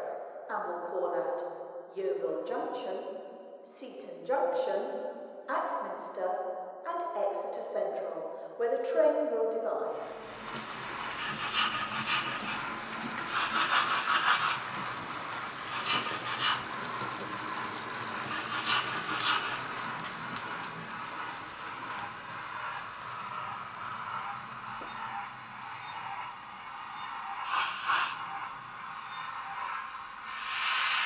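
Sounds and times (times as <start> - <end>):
model steam locomotive hissing: 9.9 - 31.0
model wheels rattling on track: 10.1 - 28.0.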